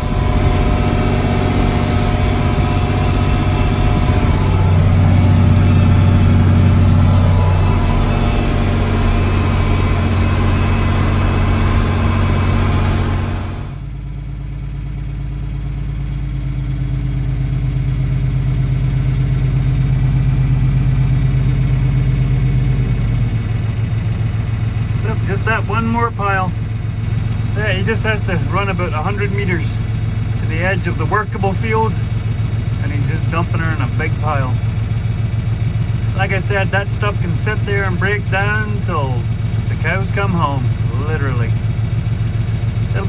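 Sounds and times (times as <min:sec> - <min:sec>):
tractor diesel engine running: 0:00.0 - 0:43.0.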